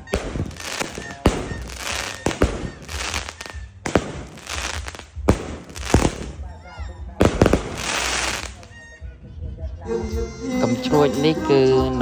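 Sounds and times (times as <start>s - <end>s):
crackling hiss of bursting stars: 0.0s - 6.4s, 7.4s - 8.6s
fireworks banging: 0.0s - 6.6s, 7.2s - 8.8s.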